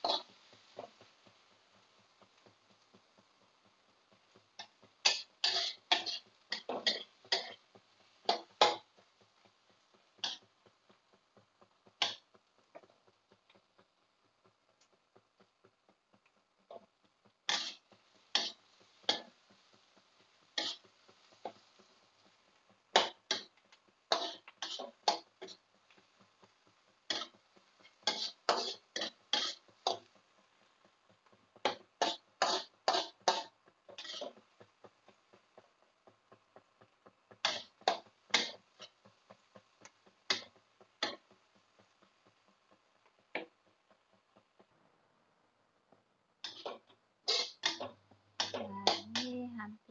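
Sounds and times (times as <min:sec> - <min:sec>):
metal spatula scraping a wok: 0:00.0 - 0:00.9, 0:04.6 - 0:08.9, 0:10.2 - 0:10.5, 0:17.5 - 0:19.4, 0:20.6 - 0:21.6, 0:23.0 - 0:23.5, 0:24.1 - 0:25.6, 0:27.1 - 0:30.1, 0:31.6 - 0:34.4, 0:37.4 - 0:38.9, 0:46.4 - 0:49.2
oil sizzling: 0:00.0 - 0:49.9.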